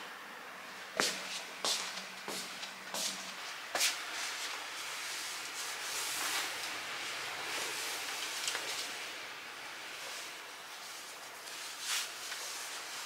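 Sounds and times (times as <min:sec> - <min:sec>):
apron fabric rustling: 0:01.0 - 0:09.1.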